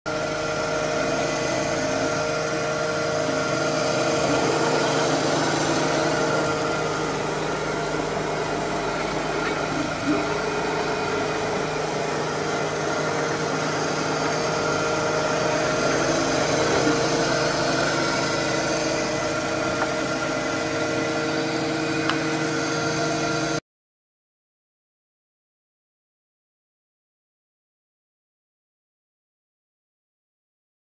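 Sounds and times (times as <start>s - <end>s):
surface grinder hum: 0.1s - 23.6s.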